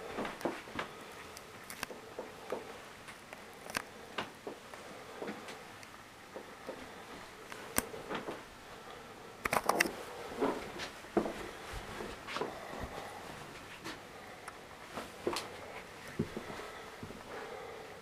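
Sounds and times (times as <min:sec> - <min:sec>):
footsteps indoors: 0:00.0 - 0:05.7, 0:09.8 - 0:17.6.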